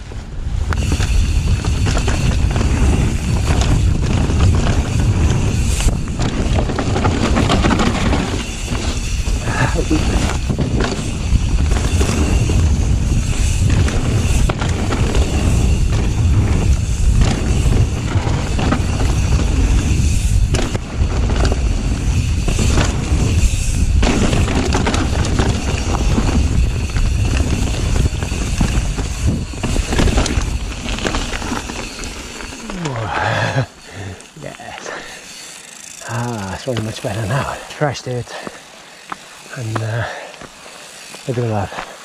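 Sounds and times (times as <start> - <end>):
wind rumble on microphone: 0.0 - 31.7
bike tyres rolling over dirt: 0.0 - 42.0
bike frame knocking and rattling: 0.7 - 33.6.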